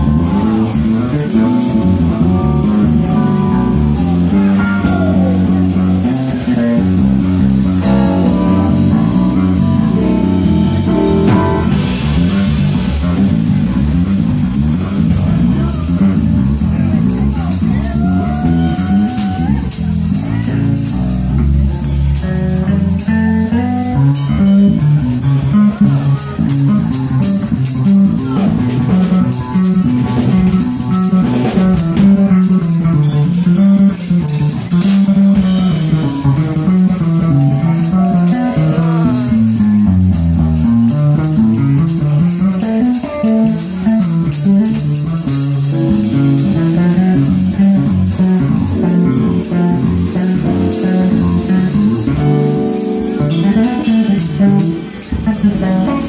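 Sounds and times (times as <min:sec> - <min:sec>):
bass line: 0:00.0 - 0:56.0
drum kit cymbals: 0:00.0 - 0:56.0
lead instrument playing quick runs: 0:48.5 - 0:56.0.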